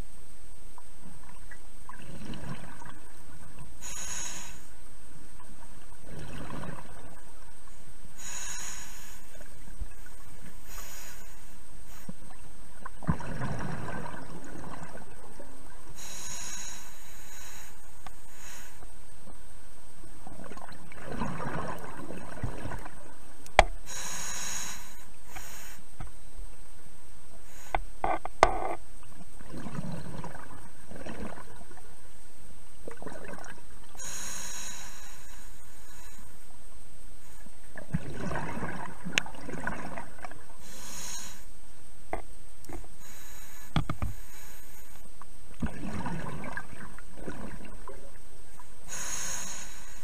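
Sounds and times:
steady underwater hiss: 0:00.0 - 0:50.0
exhaled bubbles underwater: 0:01.2 - 0:03.7, 0:05.4 - 0:07.7, 0:12.2 - 0:16.0, 0:20.2 - 0:23.4, 0:29.0 - 0:32.0, 0:32.8 - 0:34.0, 0:37.6 - 0:40.6, 0:45.5 - 0:48.7
hissing inhale through regulator: 0:03.8 - 0:04.8, 0:08.2 - 0:12.4, 0:15.9 - 0:19.0, 0:23.8 - 0:26.1, 0:27.4 - 0:28.2, 0:34.0 - 0:36.6, 0:40.6 - 0:41.6, 0:42.7 - 0:45.1, 0:48.8 - 0:50.0.

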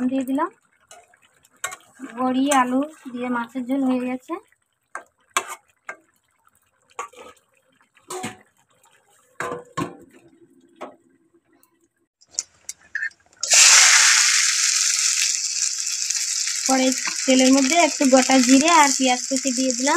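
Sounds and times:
hot oil sizzling: 0:00.0 - 0:06.3, 0:12.2 - 0:19.9.

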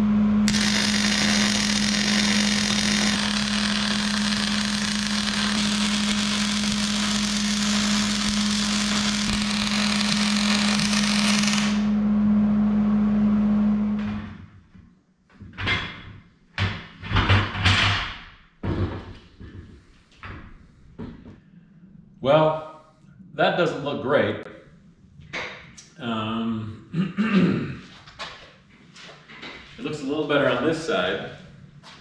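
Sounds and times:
steady welder hum: 0:00.0 - 0:12.3
welder arc crackling: 0:00.5 - 0:12.0.

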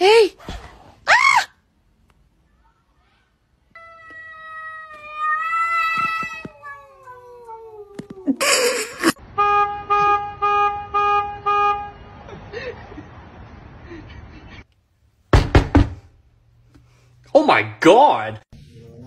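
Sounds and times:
cat yowling: 0:03.7 - 0:08.4
car horn beeping: 0:09.2 - 0:12.3.

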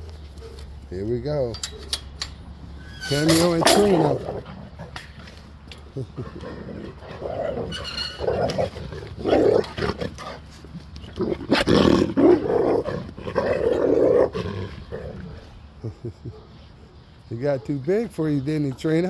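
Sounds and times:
dogs growling and snarling: 0:03.4 - 0:16.3.

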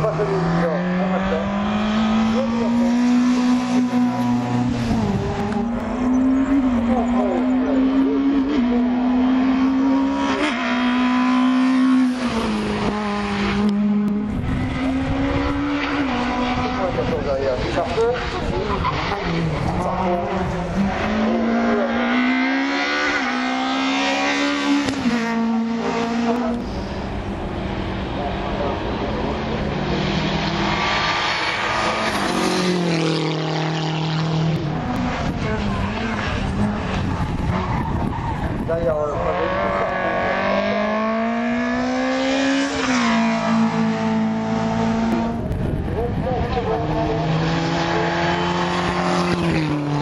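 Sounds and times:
race car engine at high revs: 0:00.0 - 0:50.0.

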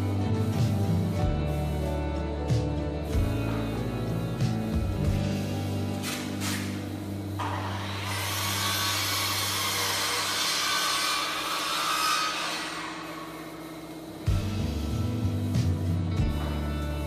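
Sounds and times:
power tool cutting wood: 0:07.4 - 0:14.1.

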